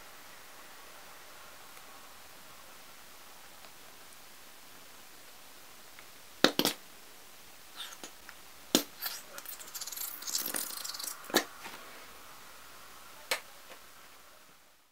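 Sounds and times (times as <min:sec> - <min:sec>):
bottle hissing and spluttering: 0:08.8 - 0:11.5.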